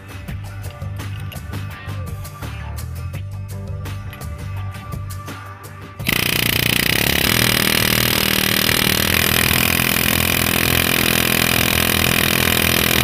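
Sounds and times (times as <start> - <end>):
pneumatic hammer rattling: 6.0 - 13.0.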